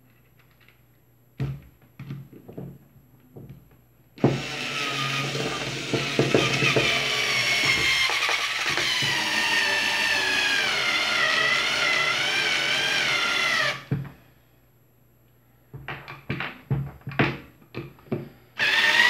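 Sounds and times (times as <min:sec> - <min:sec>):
cordless screwdriver motor whine: 0:04.4 - 0:13.8, 0:18.6 - 0:19.0.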